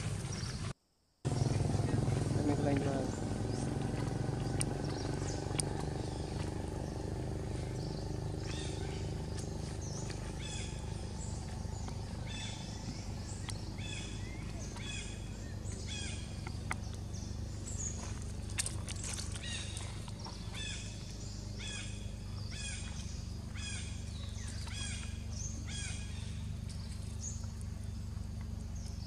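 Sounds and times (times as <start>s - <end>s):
animal chirping calls: 1.3s - 18.2s
low background rumble: 1.3s - 29.0s.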